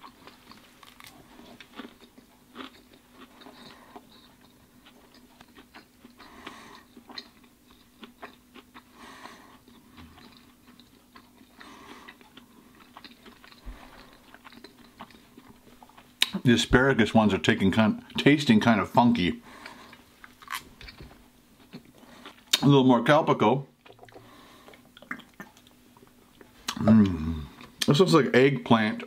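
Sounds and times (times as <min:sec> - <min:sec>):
man chewing food: 0:00.0 - 0:16.5, 0:18.9 - 0:22.7, 0:23.7 - 0:28.0.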